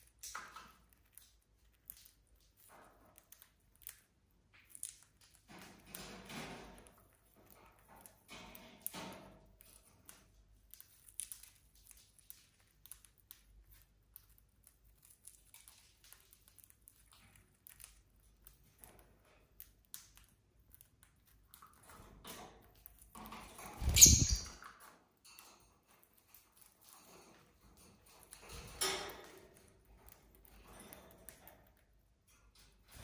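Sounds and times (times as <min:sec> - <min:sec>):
flutter of wings: 0:23.8 - 0:24.6.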